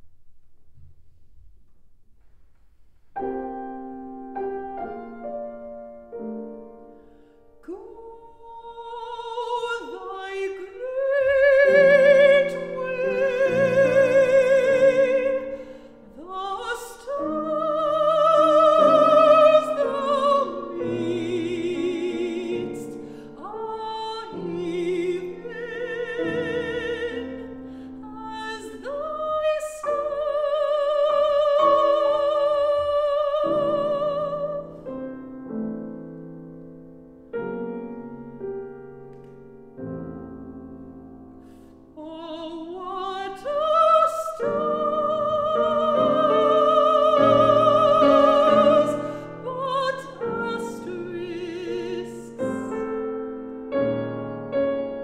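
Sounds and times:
grand piano: 0.0s - 55.0s
woman singing with vibrato: 7.6s - 34.9s, 42.0s - 53.2s.

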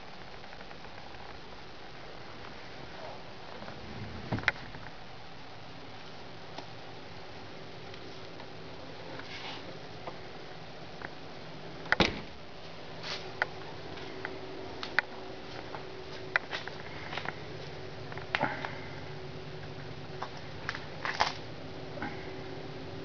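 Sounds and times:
steady background hum: 0.0s - 23.0s
heavy thump: 3.7s - 5.0s.

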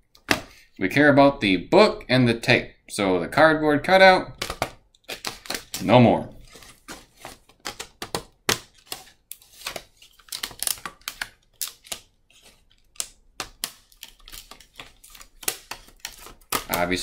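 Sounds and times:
plastic packaging being cut: 5.0s - 7.9s, 8.6s - 17.0s.

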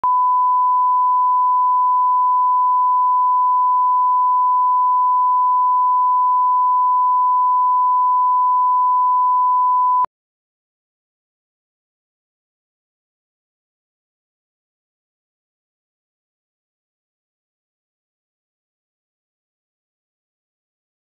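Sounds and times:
steady sine-wave test tone: 0.0s - 10.1s.

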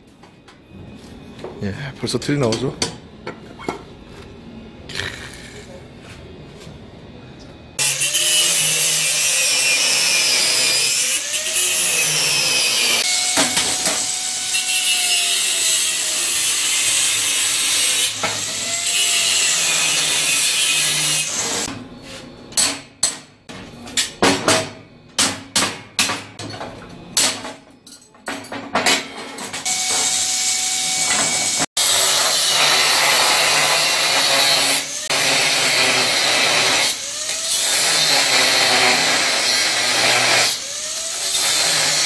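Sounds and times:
angle grinder cutting steel: 7.8s - 21.7s, 29.6s - 42.0s.

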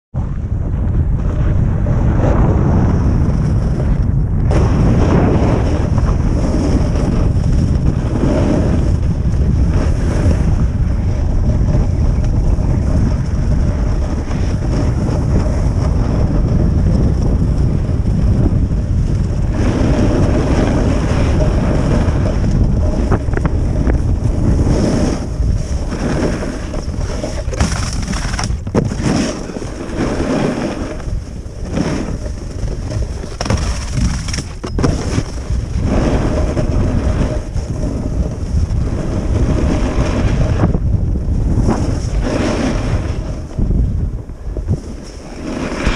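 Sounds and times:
wind rushing over microphone: 0.1s - 45.9s
snowboard scraping on snow: 1.2s - 45.9s.

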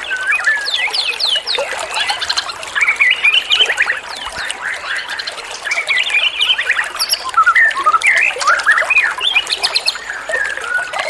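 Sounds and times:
songbirds singing: 0.0s - 11.0s.

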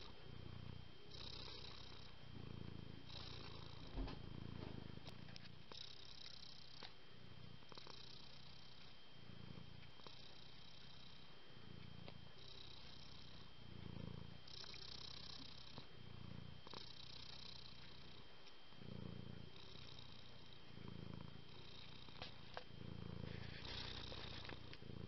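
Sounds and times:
cat purring: 0.0s - 25.0s.

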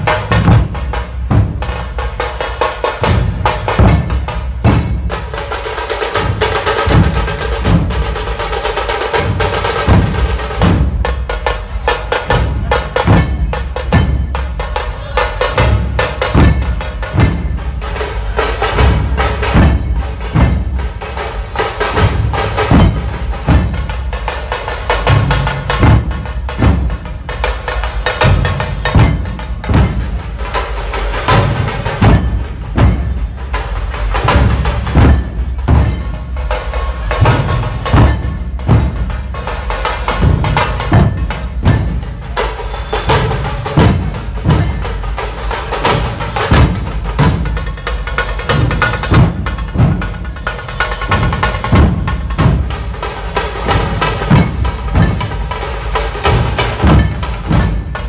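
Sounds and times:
barrel drums beating: 0.0s - 58.0s
sharp drum strokes cracking: 34.0s - 58.0s.

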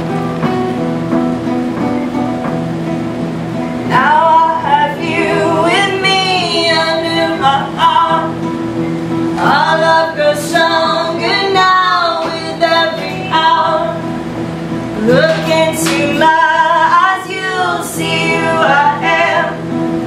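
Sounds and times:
acoustic guitars strummed: 0.0s - 20.0s
women singing together: 3.9s - 8.5s, 9.3s - 14.2s, 14.9s - 20.0s.

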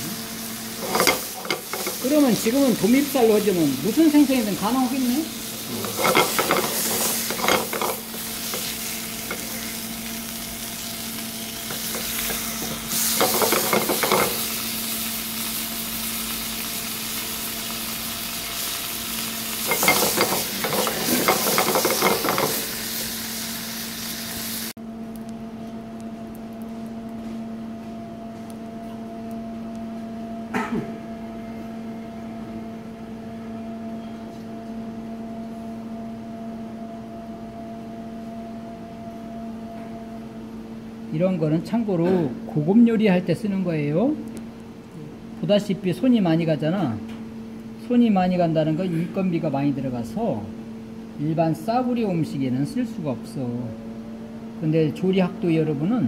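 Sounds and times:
fish sizzling in a frying pan: 0.0s - 24.8s
steady hum: 0.0s - 56.0s
wooden spatula scraping: 5.7s - 9.7s.

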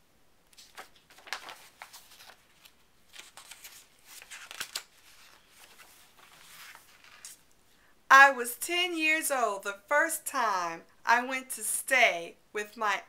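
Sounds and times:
book pages rustling: 0.5s - 7.5s.

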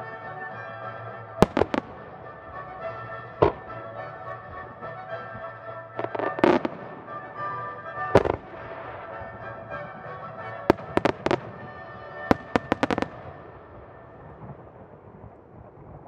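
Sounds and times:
background music: 0.0s - 14.9s
firework shells bursting: 1.4s - 2.1s, 3.4s - 3.8s.

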